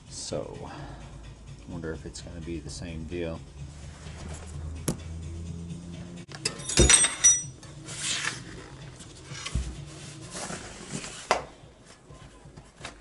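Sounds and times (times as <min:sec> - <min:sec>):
metallic ringing: 0:06.3 - 0:07.7.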